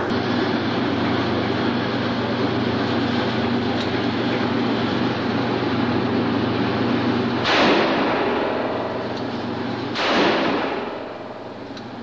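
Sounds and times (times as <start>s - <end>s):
handgun shot with echo: 7.4s - 8.9s, 10.0s - 11.2s.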